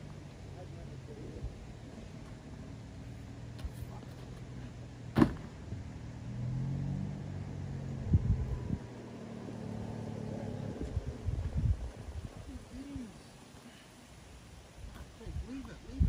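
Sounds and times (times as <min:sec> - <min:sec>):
sharp loud thump: 0:05.1 - 0:05.6.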